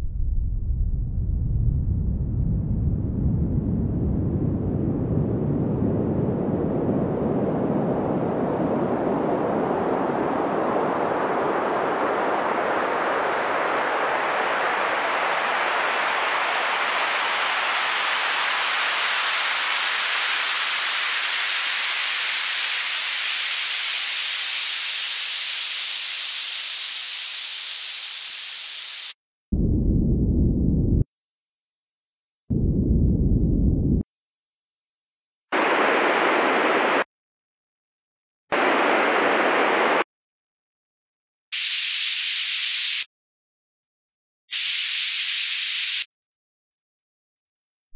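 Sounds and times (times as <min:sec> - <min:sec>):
noise sweep rising in pitch: 0:32.5 - 0:34.0.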